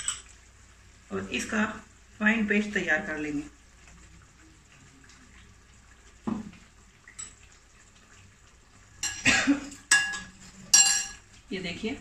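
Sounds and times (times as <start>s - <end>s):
glass bowl and utensil clattering: 0.0s - 0.3s, 9.0s - 11.2s
gravy bubbling: 0.0s - 12.0s
knock: 6.3s - 6.5s.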